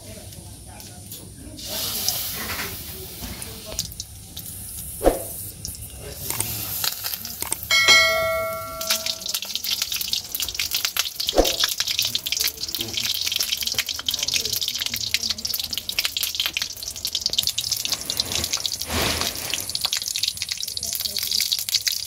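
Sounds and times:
batter sizzling in hot oil: 0.0s - 22.0s
notification bell chime: 7.7s - 9.2s.

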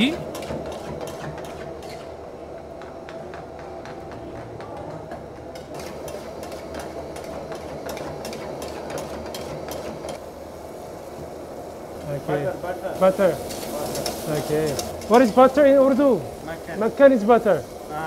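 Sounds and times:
metal spatulas scraping a pan: 0.0s - 2.2s.

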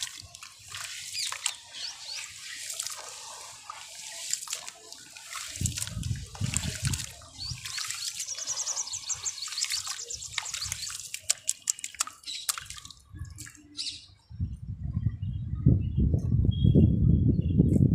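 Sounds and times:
gritty crackles of wet sand: 0.0s - 13.8s
water sloshing and squelching: 0.0s - 13.8s.

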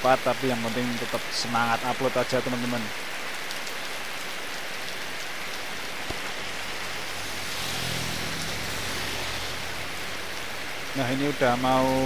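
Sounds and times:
heavy rain on road and roof: 0.0s - 12.0s
motor scooter passing on wet road: 4.7s - 12.0s.

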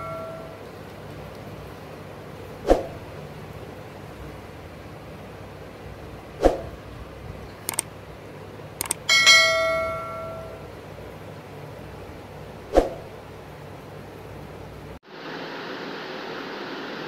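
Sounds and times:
bell ding: 0.0s - 0.7s, 9.1s - 10.7s
mouse clicks: 7.6s - 7.9s, 8.8s - 9.0s.

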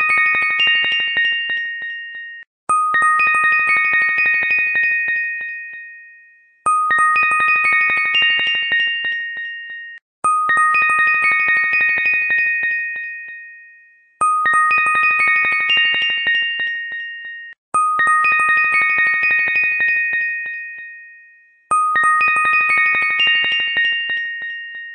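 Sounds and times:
electronic chime melody: 0.0s - 24.9s.

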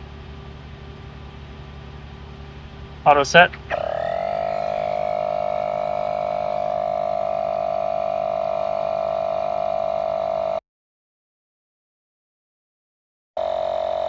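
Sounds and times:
tire inflator whining and chattering: 3.1s - 10.6s, 13.4s - 14.0s.

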